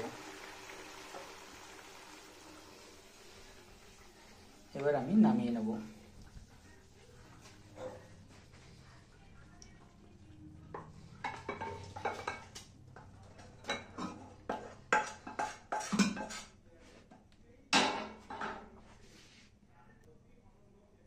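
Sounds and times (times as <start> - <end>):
pan scraping: 13.8 - 16.6.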